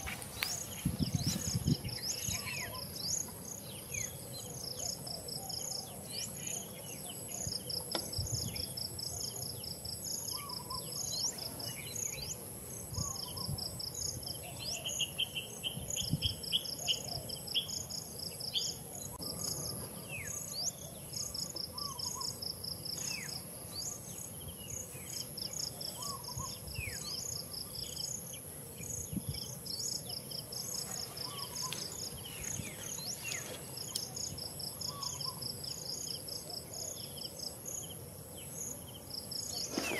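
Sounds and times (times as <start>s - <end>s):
insects chirping: 0.0s - 39.9s
downward-sliding bird calls: 39.6s - 39.9s.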